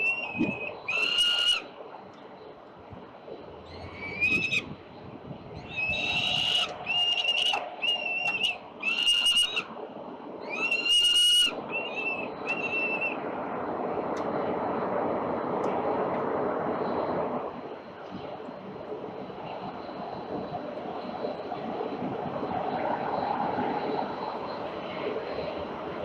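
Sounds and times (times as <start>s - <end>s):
falcons wailing calls: 0.0s - 1.7s, 3.6s - 4.7s, 5.6s - 9.7s, 10.4s - 13.2s
steady rushing noise: 1.6s - 10.8s, 11.4s - 26.0s.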